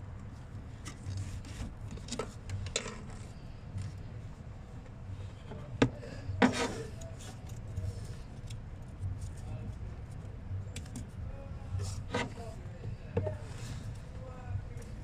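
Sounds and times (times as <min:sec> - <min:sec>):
rubber hose rubbing and scraping: 0:06.3 - 0:08.0, 0:11.7 - 0:12.6.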